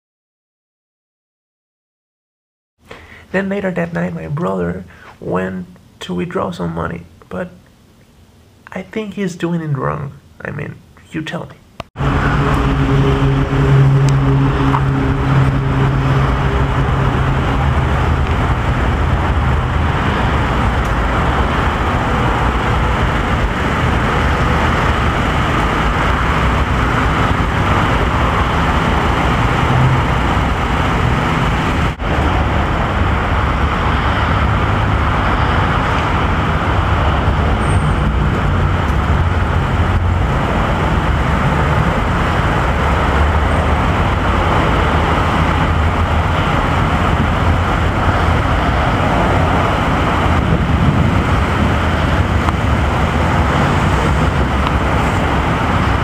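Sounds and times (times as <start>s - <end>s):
traffic noise: 2.8s - 6.0s, 11.8s - 56.0s
car engine idling: 12.0s - 56.0s
low hum: 12.0s - 56.0s.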